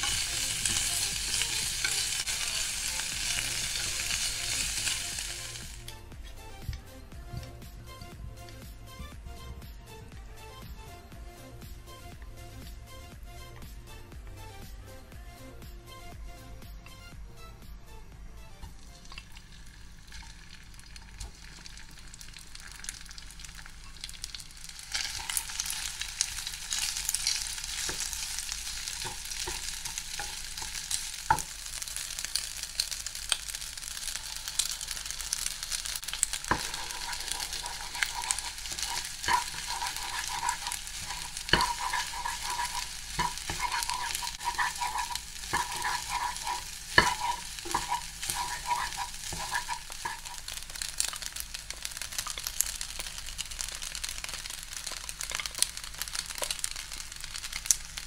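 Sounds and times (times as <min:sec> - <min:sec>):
rice sizzling in oil: 0:00.0 - 0:06.0, 0:18.6 - 0:58.0
spatula tapping and scraping pan: 0:26.7 - 0:31.5, 0:36.1 - 0:52.7.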